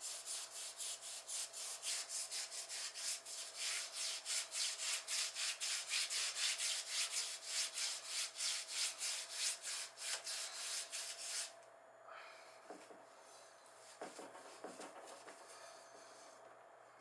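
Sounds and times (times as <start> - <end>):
pad scrubbing a wall: 0.0 - 11.5, 13.9 - 15.6.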